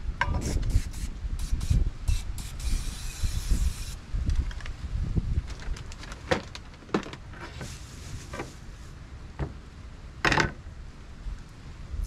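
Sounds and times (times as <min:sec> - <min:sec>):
low wind rumble on microphone: 0:00.0 - 0:12.0
oil spray hiss: 0:00.4 - 0:04.0.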